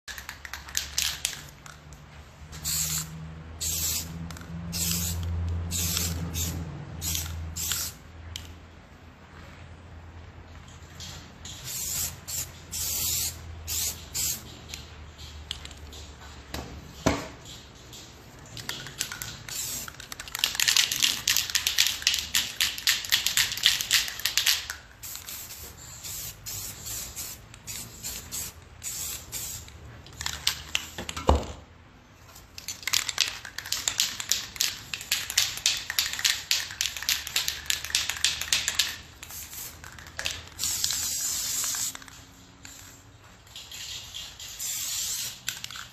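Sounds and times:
spray paint can hissing: 0:00.1 - 0:01.6, 0:02.5 - 0:08.0, 0:11.5 - 0:14.8, 0:18.6 - 0:31.0, 0:32.9 - 0:45.9.

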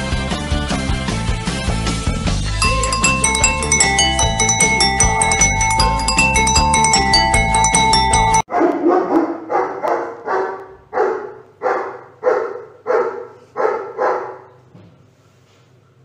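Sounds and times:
dog barking: 0:08.5 - 0:14.6.

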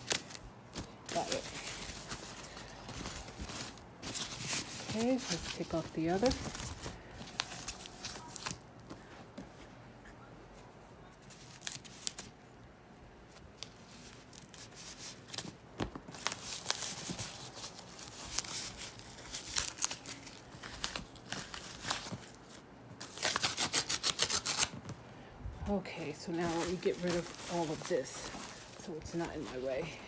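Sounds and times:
tape tearing: 0:00.0 - 0:08.7, 0:13.6 - 0:24.9
tissue paper crinkling: 0:00.0 - 0:09.2, 0:11.2 - 0:12.4, 0:13.3 - 0:24.9, 0:25.8 - 0:30.0.

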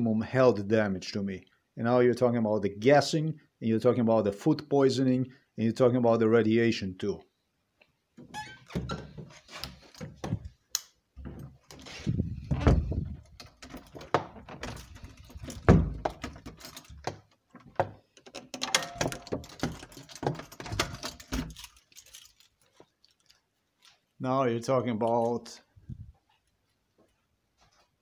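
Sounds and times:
metal fittings knocking and clicking: 0:13.3 - 0:21.4.

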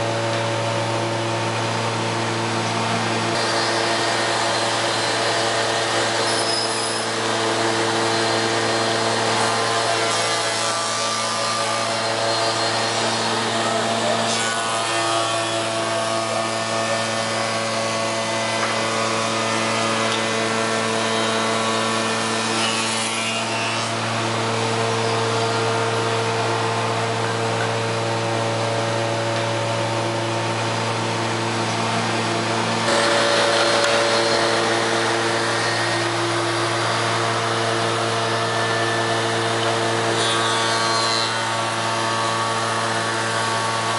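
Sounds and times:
rasping wood-cutting noise: 0:03.0 - 0:43.9
machine motors humming: 0:23.5 - 0:43.9.

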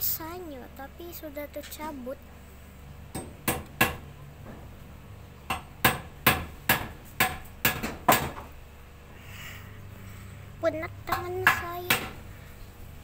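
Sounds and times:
air conditioner unit humming: 0:00.0 - 0:13.0
sharp hammer-like knocks: 0:03.1 - 0:04.1, 0:05.5 - 0:08.5, 0:11.1 - 0:12.2.

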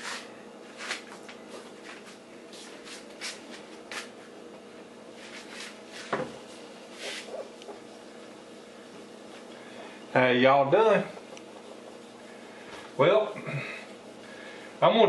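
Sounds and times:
person shuffling and rustling: 0:00.0 - 0:04.4, 0:05.0 - 0:07.6
faint hum: 0:00.0 - 0:15.0.

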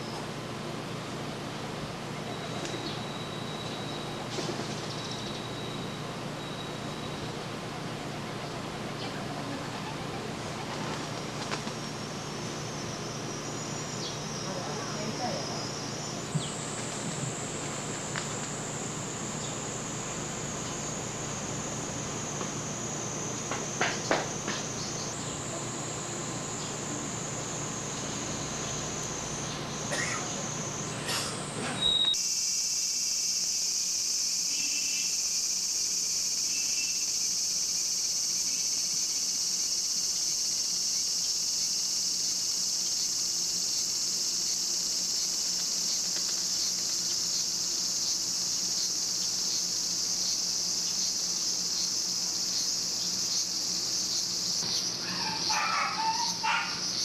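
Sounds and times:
cicadas buzzing: 0:00.0 - 0:57.0.

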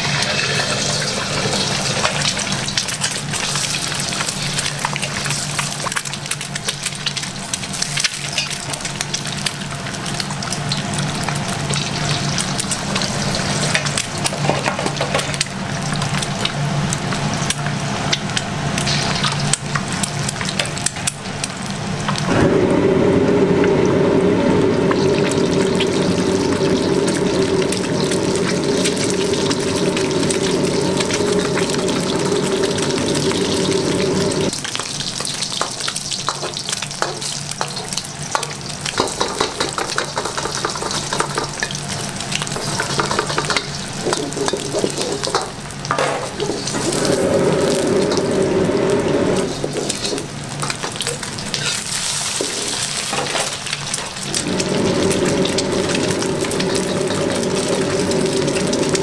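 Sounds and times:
eggs sizzling in hot oil: 0:00.0 - 0:59.0
low hum: 0:22.2 - 0:34.6, 0:46.8 - 0:49.7, 0:54.4 - 0:59.0
loud steady drone: 0:22.3 - 0:34.6, 0:54.4 - 0:59.0.

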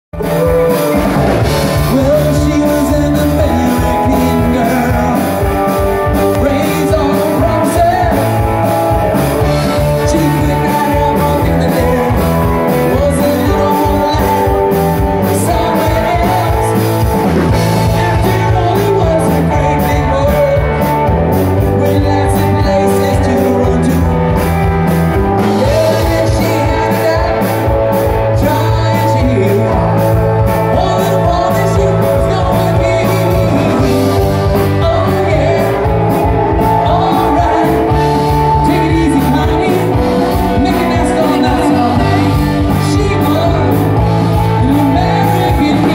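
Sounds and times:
drum kit: 0:00.1 - 0:45.9
electric guitars: 0:00.1 - 0:45.9
person singing: 0:00.2 - 0:45.9.

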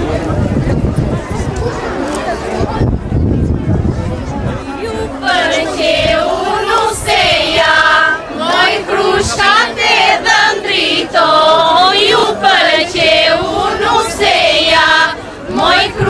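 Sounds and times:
women singing together: 0:04.8 - 0:16.0.

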